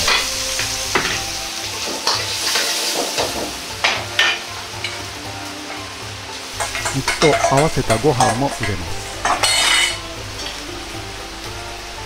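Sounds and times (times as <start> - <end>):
vegetables sizzling in hot oil: 0.0 - 12.0
metal ladle scraping a wok: 6.5 - 10.7.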